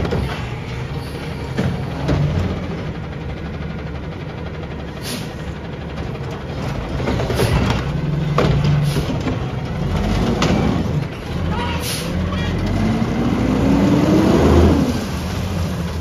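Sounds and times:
knocks and clanks of cart: 0:00.0 - 0:04.8, 0:05.7 - 0:11.7
diesel engine running: 0:00.0 - 0:16.0.

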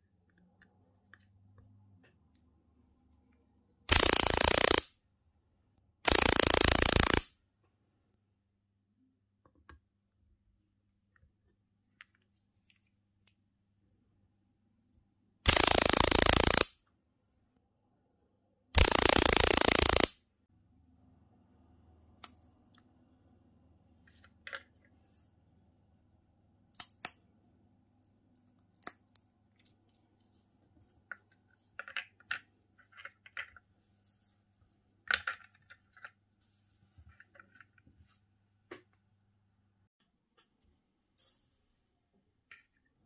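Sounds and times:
electrical arcing crackle: 0:03.9 - 0:04.9, 0:06.1 - 0:07.3, 0:15.5 - 0:16.7, 0:18.8 - 0:20.2.

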